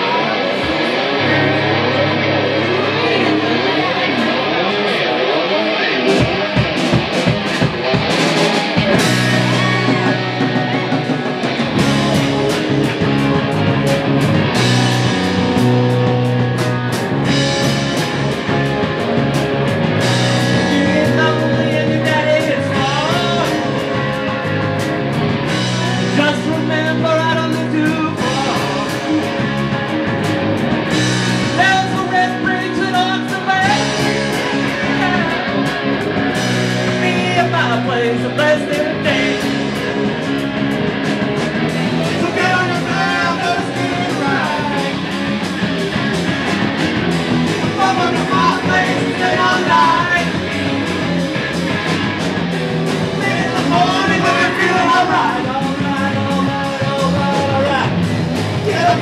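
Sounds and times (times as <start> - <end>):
distorted electric guitars: 0.0 - 59.0
drum kit: 0.0 - 59.0
person singing: 8.8 - 12.3, 20.0 - 24.5, 25.6 - 29.6, 31.4 - 35.7, 42.0 - 45.2, 47.6 - 50.5, 53.1 - 59.0.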